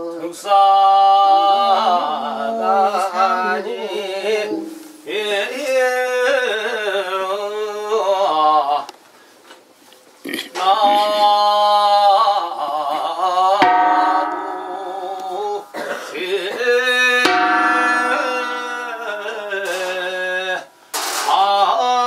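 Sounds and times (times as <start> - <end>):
wavering traditional melody: 1.8 - 5.4, 13.6 - 15.8, 17.2 - 20.1
low steady drone: 13.8 - 15.6, 17.3 - 19.4.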